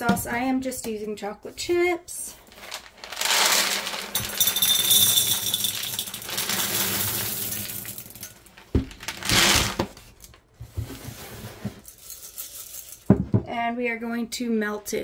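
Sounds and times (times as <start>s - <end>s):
chocolate chips rattling into glass: 2.8s - 8.5s, 11.9s - 13.1s.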